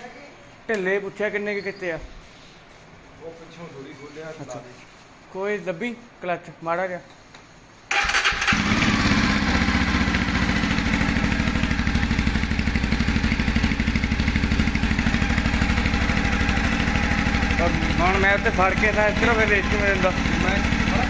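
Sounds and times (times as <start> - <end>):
motorcycle engine starting and idling: 7.9 - 21.0.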